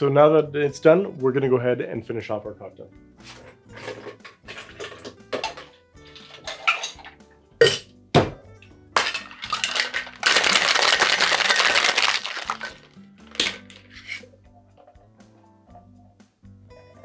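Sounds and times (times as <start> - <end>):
ice rattling in shaker: 3.8 - 7.1, 9.0 - 14.2
metal shaker tins clinking: 3.8 - 7.2, 9.0 - 14.9.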